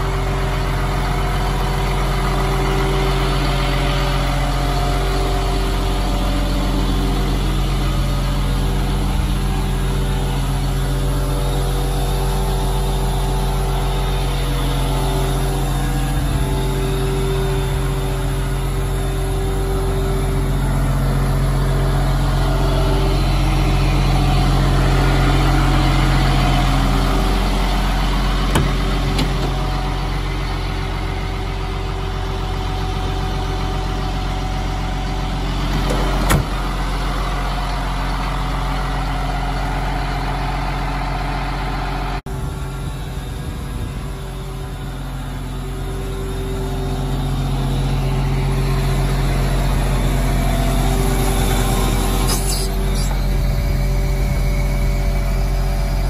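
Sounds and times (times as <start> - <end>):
diesel truck engine idling: 0.0 - 56.0
short click: 52.3 - 53.2.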